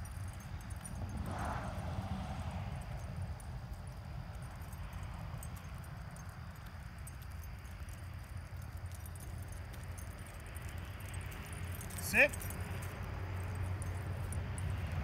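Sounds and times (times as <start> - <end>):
wind rumble on microphone: 0.0 - 12.0
dog collars jingling: 0.0 - 15.0.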